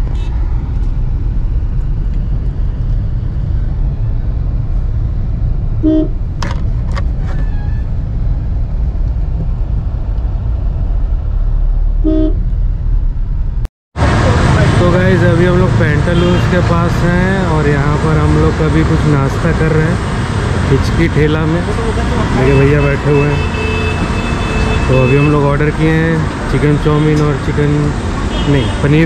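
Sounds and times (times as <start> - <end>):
car horn toots: 5.8 - 6.2, 12.0 - 12.4, 22.5 - 25.4.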